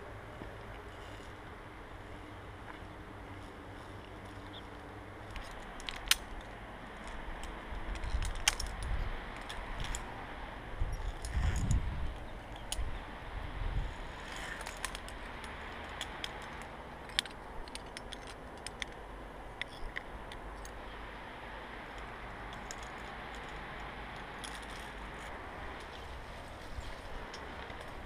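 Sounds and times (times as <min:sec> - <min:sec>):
low rumbles: 0:00.0 - 0:28.0
carabiners clinking on metal: 0:03.4 - 0:10.1, 0:10.8 - 0:13.0, 0:13.8 - 0:21.0, 0:21.9 - 0:28.0.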